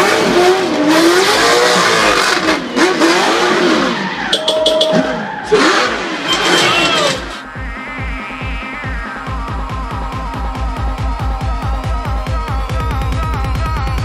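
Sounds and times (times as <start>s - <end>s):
car engine revving: 0.0s - 8.0s
tyres screeching: 4.2s - 7.6s.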